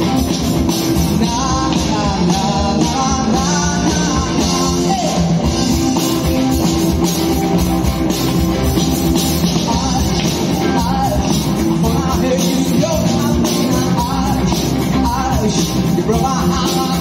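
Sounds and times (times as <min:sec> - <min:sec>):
bass guitar: 0:00.0 - 0:17.0
drum kit: 0:00.0 - 0:17.0
electric guitar: 0:00.0 - 0:17.0
man singing: 0:00.9 - 0:05.8, 0:09.4 - 0:17.0.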